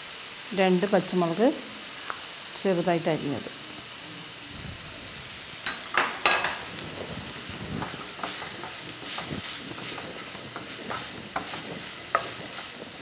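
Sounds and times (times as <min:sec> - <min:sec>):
onions sizzling in a frying pan: 0:00.0 - 0:13.0
wooden spatula scraping a pan: 0:07.4 - 0:13.0.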